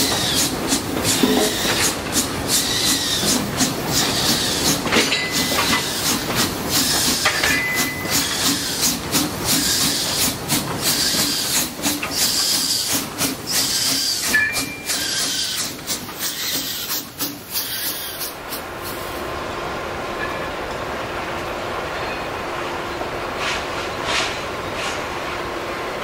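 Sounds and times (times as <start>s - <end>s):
steam hissing: 0.0s - 19.3s, 23.3s - 25.6s
wagons clanking: 3.2s - 8.5s
short high squeals: 10.9s - 18.3s.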